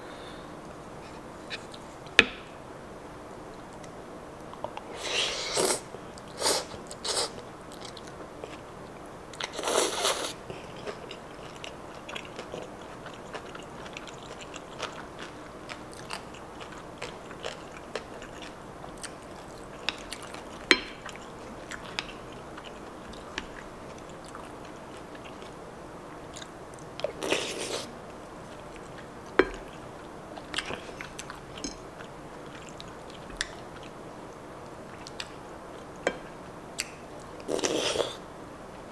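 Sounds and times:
slurping noodles: 5.0 - 5.8, 9.5 - 10.3, 27.2 - 27.9
chewing: 6.2 - 34.0, 34.9 - 36.2.

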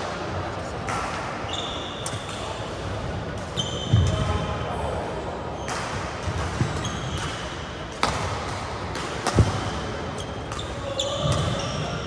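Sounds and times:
shoes squeaking on court floor: 1.5 - 2.7, 3.4 - 4.4, 5.5 - 7.6, 9.3 - 12.0
rackets striking shuttlecock: 5.6 - 12.0.

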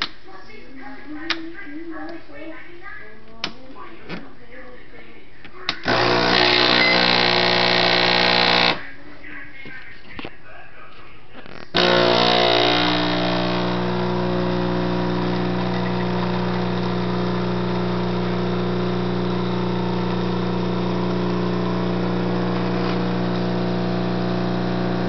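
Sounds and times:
espresso machine pump buzzing: 5.8 - 8.8, 11.7 - 25.0.

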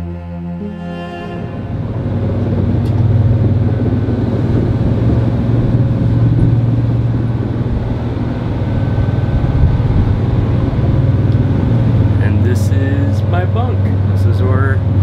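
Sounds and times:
ship engine droning: 0.0 - 15.0.

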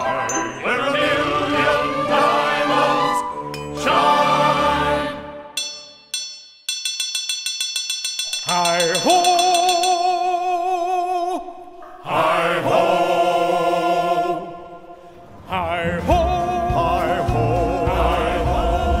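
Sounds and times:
choir singing held notes: 0.0 - 5.6, 12.0 - 19.0.

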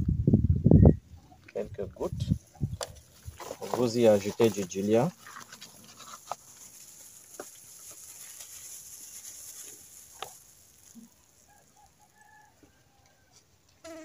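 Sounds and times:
gloves and paper rustling: 2.0 - 12.5.

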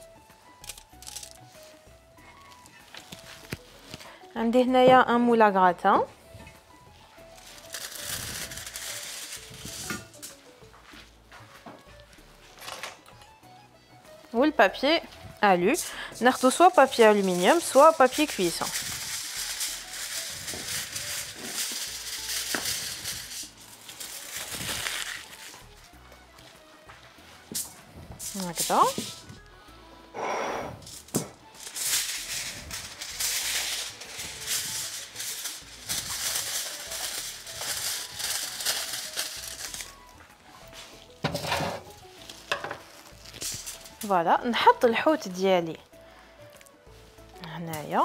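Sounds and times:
soft background music: 0.0 - 48.0
paper crinkling and rustling: 0.6 - 4.2, 6.5 - 13.0, 15.2 - 29.4, 31.5 - 45.4.

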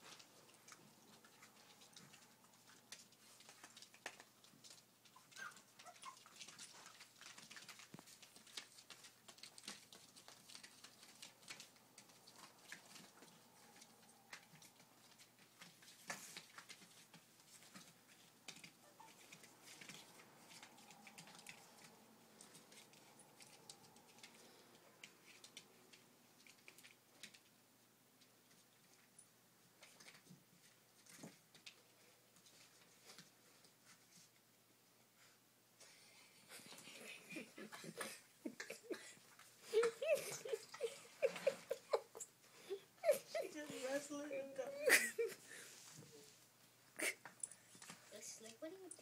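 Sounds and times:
puppy claws on plastic tarp: 0.0 - 27.6
puppy squeaks: 5.2 - 6.4.

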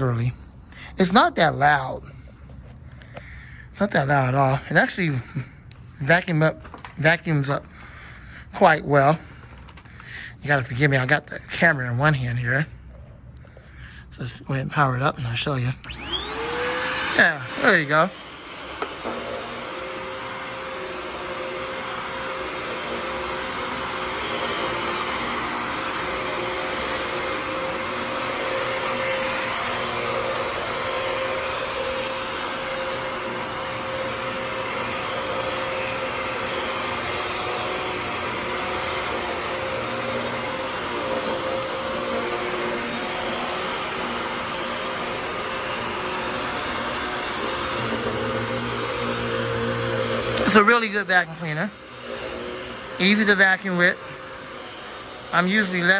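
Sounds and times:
vacuum cleaner running on carpet: 14.3 - 55.9.

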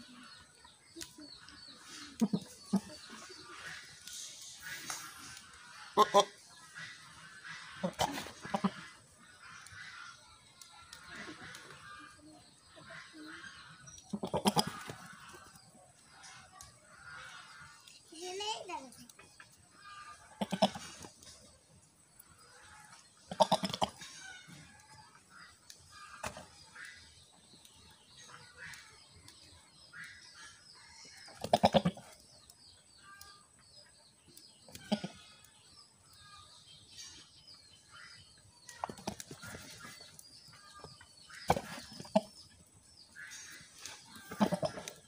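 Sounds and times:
goats bleating: 14.1 - 15.0, 44.2 - 45.0.

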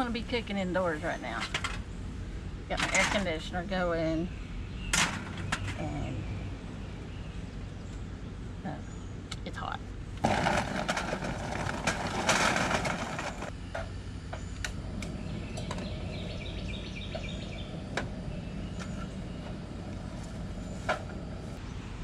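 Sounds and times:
birds chirping: 0.0 - 10.2, 13.1 - 22.0
air conditioner hum: 0.0 - 22.0.

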